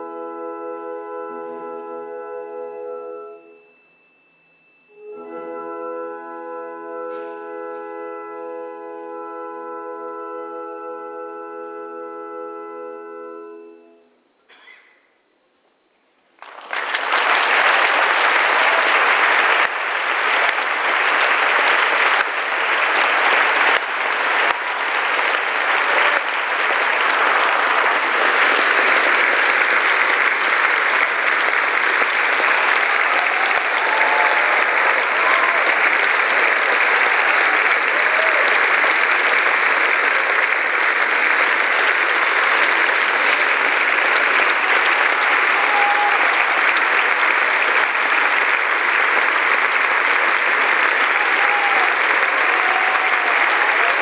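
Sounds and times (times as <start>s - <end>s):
audience applauding: 16.3s - 54.0s.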